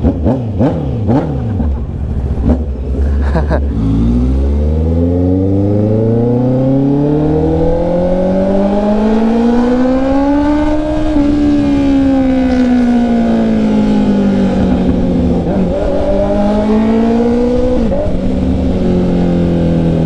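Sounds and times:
motorcycle engine revving: 0.0 - 20.0.

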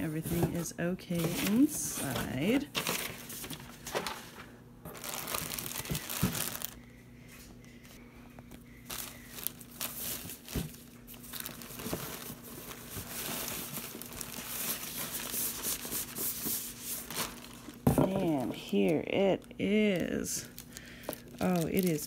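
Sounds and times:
plastic bags crinkling: 2.4 - 6.8, 8.8 - 22.0.

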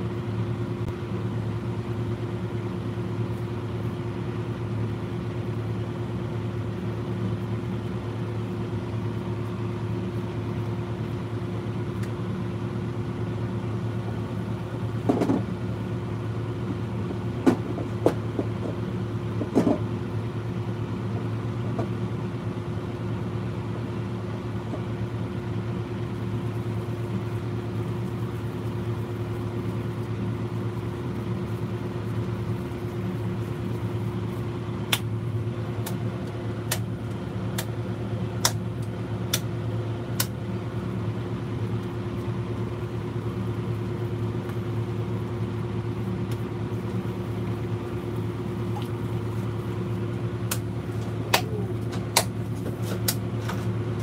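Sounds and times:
machine hum: 0.0 - 54.0
hands slapping raw meat: 34.8 - 37.8, 38.4 - 40.4, 50.4 - 53.2.

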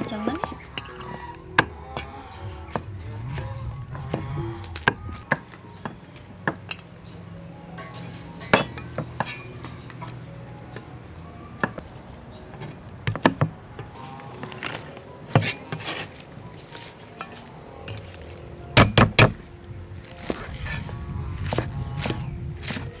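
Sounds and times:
soft background music: 0.0 - 23.0
cleaver chopping on wooden board: 18.8 - 19.4.

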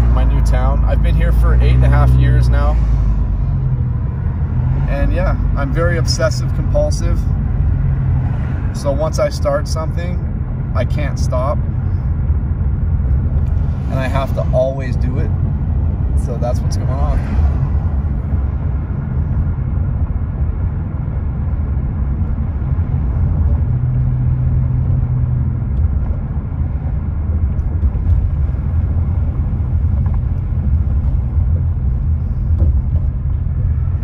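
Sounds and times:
car engine and road rumble: 0.0 - 34.0.

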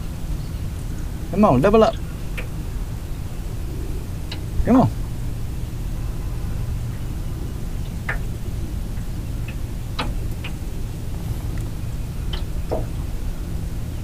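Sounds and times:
steady low hum: 0.0 - 14.0
light clicks and ticks: 11.4 - 12.9.

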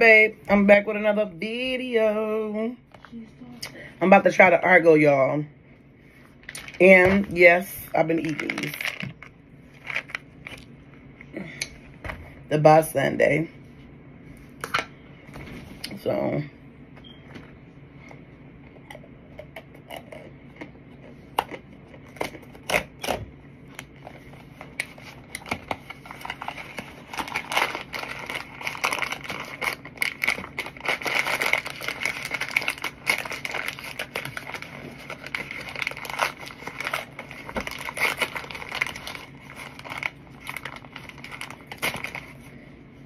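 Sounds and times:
paper and cardboard tearing: 26.1 - 42.3.

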